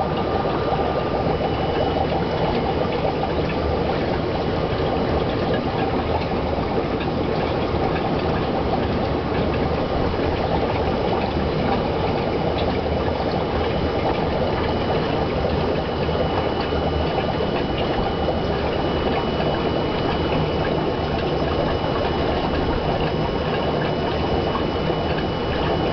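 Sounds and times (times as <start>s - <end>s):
aquarium water bubbling: 0.0s - 25.9s.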